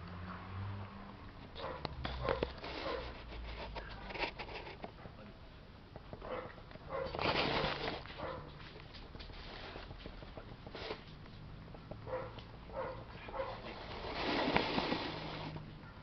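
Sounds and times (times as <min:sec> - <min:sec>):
rustling noise: 0:01.5 - 0:05.1, 0:06.2 - 0:11.4, 0:12.0 - 0:15.8
puppy barking: 0:01.6 - 0:03.2, 0:06.2 - 0:07.2, 0:08.2 - 0:08.6, 0:12.0 - 0:13.6.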